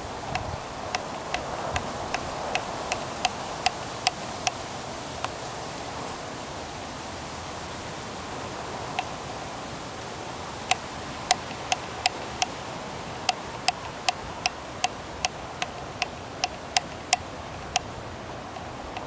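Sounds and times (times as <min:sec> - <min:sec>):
steady hiss: 0:00.0 - 0:19.0
sharp clicks: 0:13.3 - 0:19.0.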